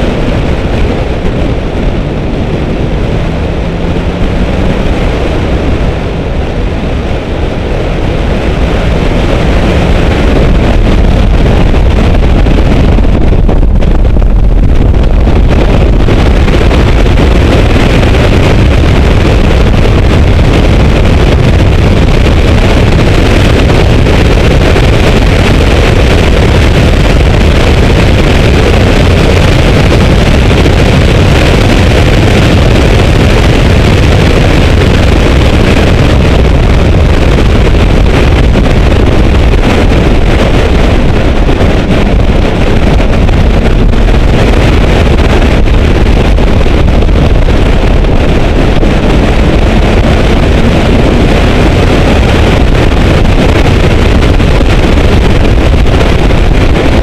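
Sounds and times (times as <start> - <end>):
car engine under load: 0.0 - 16.2
wind buffeting microphone: 0.0 - 57.0.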